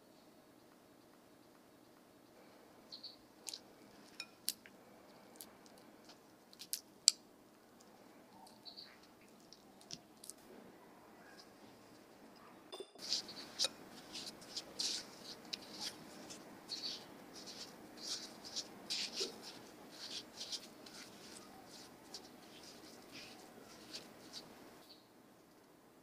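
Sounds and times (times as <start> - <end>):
spatula scraping a glass bowl: 13.0 - 24.5.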